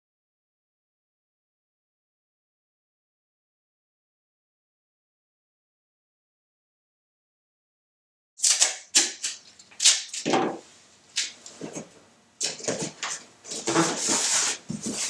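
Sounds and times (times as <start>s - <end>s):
tape ripping and crackling: 8.4s - 10.4s, 11.1s - 11.8s.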